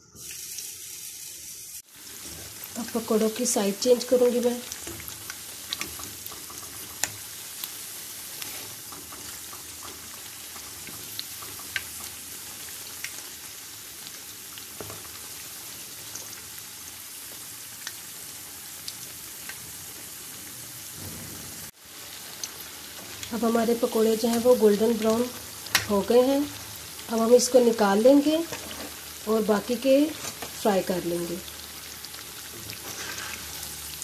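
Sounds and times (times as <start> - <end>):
deep-frying sizzle: 0.0 - 34.0
oil popping and crackling: 2.1 - 16.6, 21.7 - 27.5.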